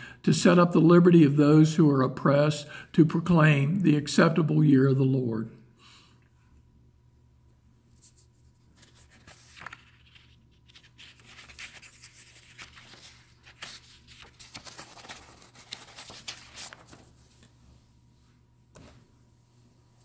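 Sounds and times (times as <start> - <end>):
low steady hum: 0.0 - 20.0
scratchy rustling: 8.0 - 17.5.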